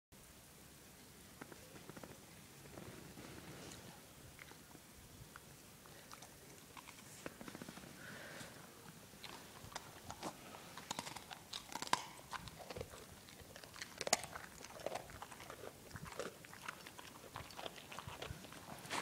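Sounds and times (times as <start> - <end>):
dog crunching a pretzel: 3.6 - 7.8, 9.2 - 19.0.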